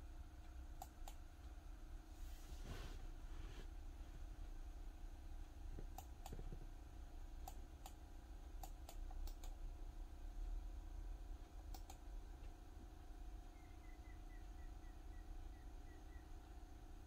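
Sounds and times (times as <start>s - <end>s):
steady low hum: 0.0s - 17.0s
faint sharp clicks: 7.4s - 9.6s, 11.4s - 12.6s.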